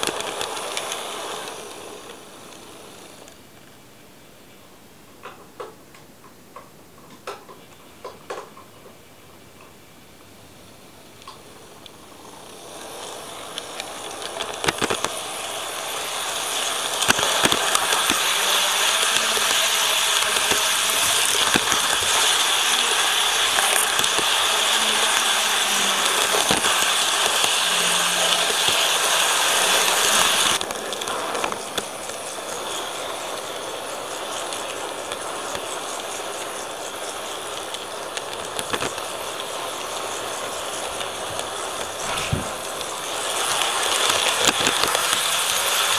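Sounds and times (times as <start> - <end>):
model train wheels whirring: 0.0 - 4.1, 9.6 - 45.9
track clicks: 10.7 - 45.9.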